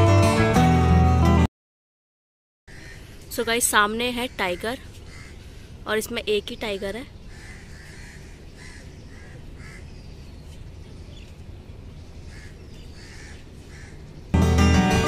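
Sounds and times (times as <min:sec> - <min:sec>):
birds calling: 0:02.7 - 0:14.4.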